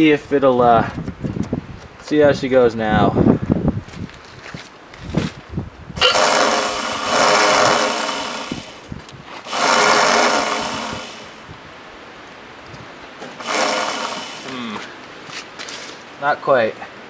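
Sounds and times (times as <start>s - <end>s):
electric starter motor whirring: 6.0s - 11.4s, 13.2s - 14.8s.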